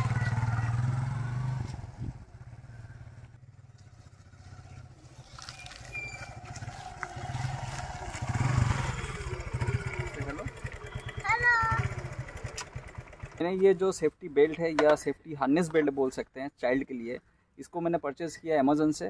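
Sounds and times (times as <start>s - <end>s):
motorcycle engine passing: 0.0s - 13.6s.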